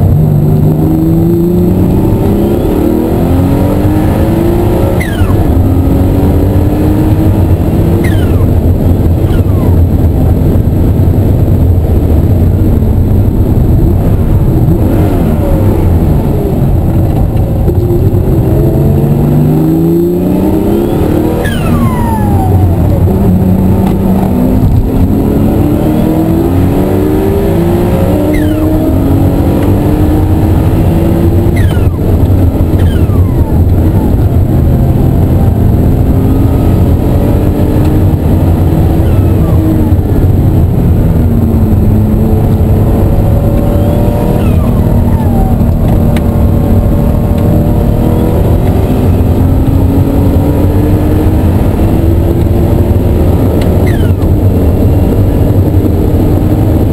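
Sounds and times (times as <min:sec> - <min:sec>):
car engine revving through gears: 0:00.0 - 0:56.9
short falling turbo whistles: 0:31.5 - 0:32.0.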